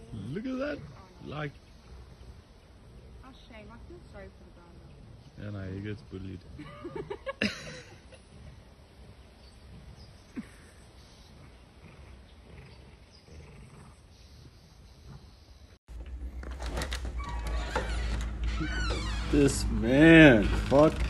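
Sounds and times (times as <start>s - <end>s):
dogs growling: 0.0s - 15.4s.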